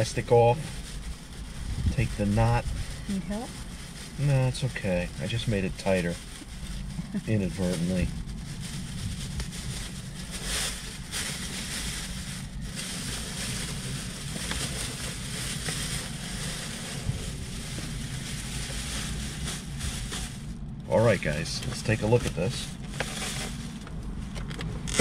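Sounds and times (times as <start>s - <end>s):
low rumble and hiss: 0.0s - 25.0s
plastic bag rustling: 0.0s - 25.0s.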